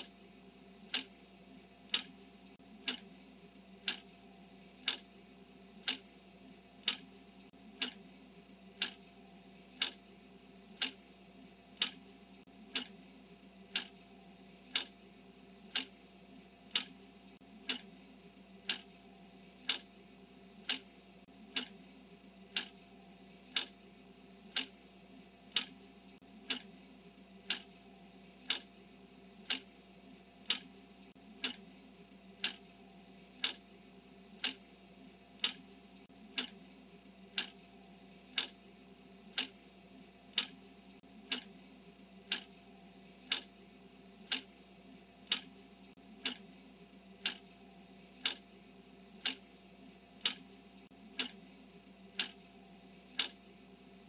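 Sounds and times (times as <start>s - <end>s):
clock ticking: 0.8s - 1.2s, 1.8s - 3.2s, 3.8s - 8.1s, 8.7s - 10.1s, 10.7s - 11.1s, 11.7s - 13.1s, 13.7s - 15.0s, 15.6s - 18.0s, 18.6s - 20.0s, 20.6s - 21.8s, 22.4s - 23.8s, 24.4s - 26.8s, 27.4s - 28.7s, 29.4s - 29.8s, 30.4s - 31.7s, 32.3s - 33.7s, 34.3s - 36.6s, 37.2s - 38.6s, 39.3s - 39.7s, 40.3s - 41.6s, 42.2s - 42.6s, 43.2s - 43.6s, 44.2s - 46.6s, 47.2s - 48.5s, 49.1s - 49.6s, 50.2s - 51.5s, 52.1s - 52.5s, 53.1s - 53.4s.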